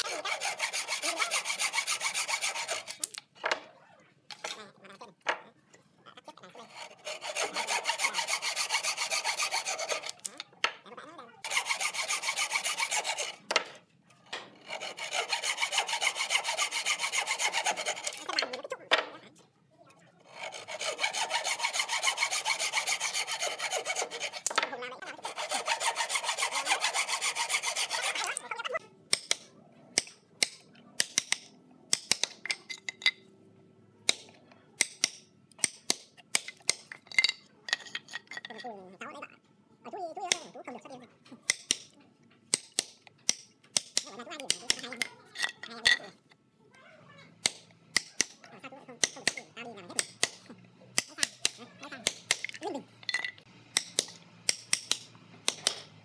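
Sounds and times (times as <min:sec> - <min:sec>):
saw cutting wood: 0:00.0 - 0:03.1, 0:06.6 - 0:10.4, 0:11.4 - 0:13.7, 0:14.4 - 0:18.7, 0:20.2 - 0:28.5, 0:53.7 - 0:56.0.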